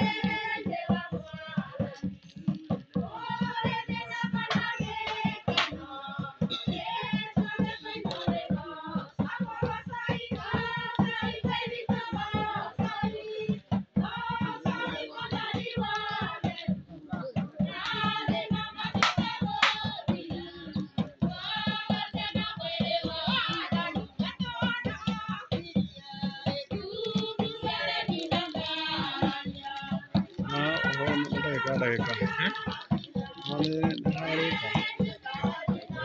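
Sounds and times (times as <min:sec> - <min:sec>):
music with steady beat: 0:00.0 - 0:36.0
person singing: 0:27.0 - 0:36.0.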